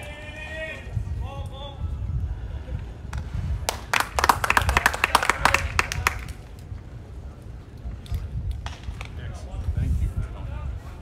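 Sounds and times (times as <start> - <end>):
crowd clapping: 3.6 - 6.5.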